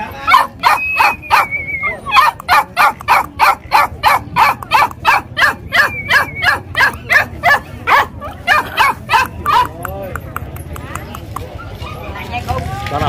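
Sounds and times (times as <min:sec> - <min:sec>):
puppy barking high yaps: 0:00.3 - 0:09.8.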